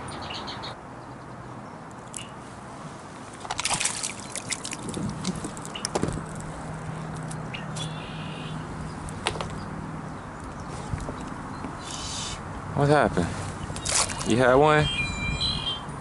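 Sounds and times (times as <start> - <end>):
water splashes and drips: 1.9 - 2.4, 3.2 - 7.4, 13.7 - 14.5.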